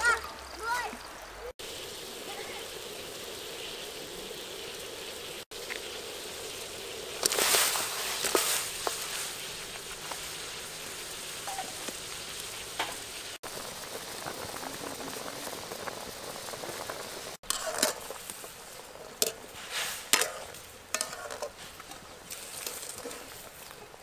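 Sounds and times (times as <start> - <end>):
water boiling in a wok: 0.0 - 24.0
knocks and scrapes: 17.4 - 18.5, 19.2 - 22.0.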